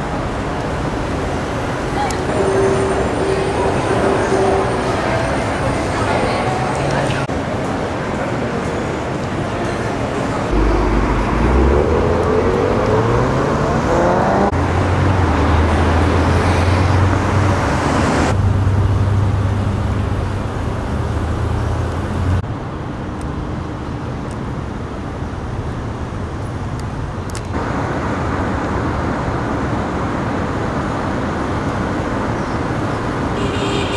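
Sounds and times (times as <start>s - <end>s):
road noise: 0.0s - 33.9s
car accelerating past: 10.5s - 19.8s
low engine hum: 10.5s - 22.4s.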